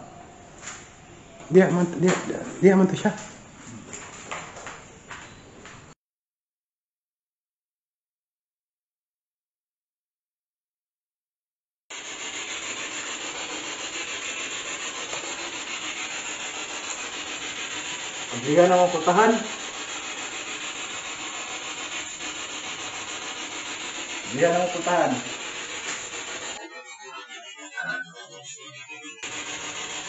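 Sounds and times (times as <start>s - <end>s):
radio static hiss: 12.0s - 30.0s
voice-like radio fragments: 24.3s - 25.5s, 26.6s - 30.0s.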